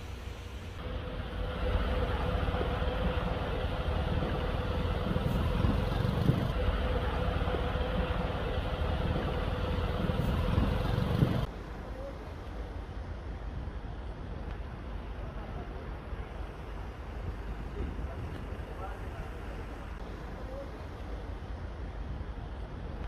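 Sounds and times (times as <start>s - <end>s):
truck engine running: 0.0s - 11.5s.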